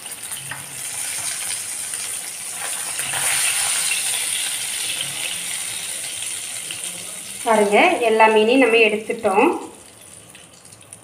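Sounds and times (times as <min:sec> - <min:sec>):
oil sizzling in a frying pan: 0:00.0 - 0:11.0
spatula moving through oil: 0:00.2 - 0:06.8.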